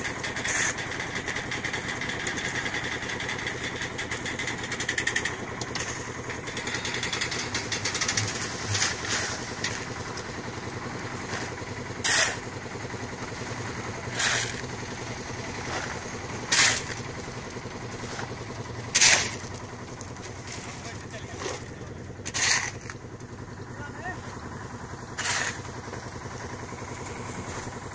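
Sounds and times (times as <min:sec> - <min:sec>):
shovels scraping concrete: 0:00.0 - 0:03.0, 0:04.5 - 0:06.1, 0:06.7 - 0:10.4, 0:11.1 - 0:12.5, 0:14.0 - 0:14.8, 0:15.4 - 0:17.2, 0:18.0 - 0:23.0, 0:25.1 - 0:26.0
mixer engine running: 0:00.0 - 0:27.9
wet concrete sliding out: 0:07.5 - 0:09.9.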